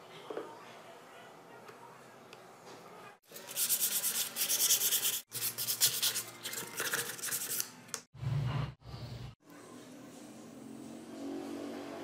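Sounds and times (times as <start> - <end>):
sandpaper scratching wood: 3.4 - 7.7.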